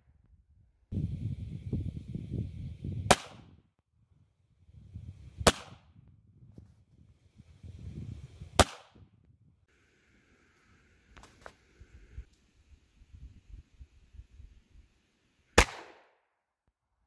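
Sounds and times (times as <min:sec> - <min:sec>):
rifle shots: 0:08.6 - 0:09.0, 0:15.6 - 0:16.1.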